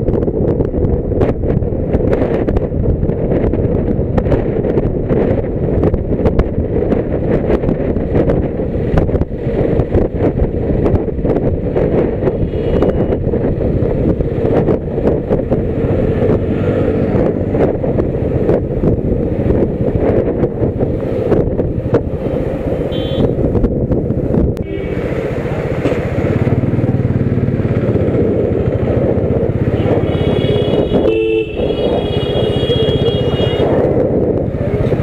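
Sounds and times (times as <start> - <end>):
motorcycle engine running: 0.0 - 35.0
wind buffeting microphone: 0.0 - 35.0
car horn toots: 12.4 - 13.2, 22.9 - 23.4, 24.6 - 25.0, 29.7 - 33.8.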